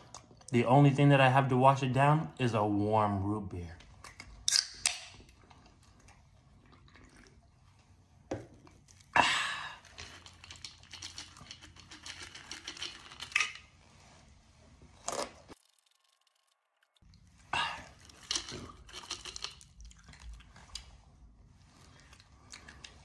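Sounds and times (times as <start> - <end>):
corn nuts rattling in plastic tube: 9.8 - 13.4, 18.0 - 19.7.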